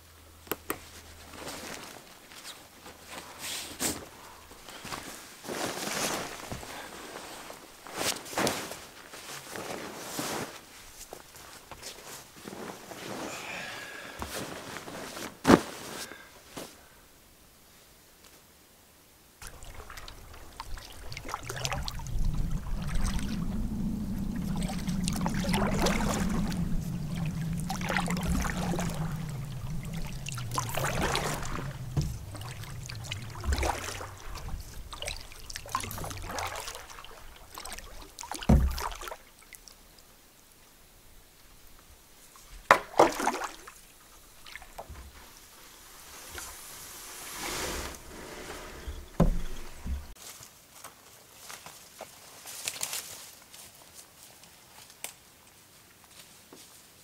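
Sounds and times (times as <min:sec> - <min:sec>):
low rumble: 0:19.4 - 0:38.1
paddle strokes swishing in water: 0:19.4 - 0:39.7, 0:42.6 - 0:50.2.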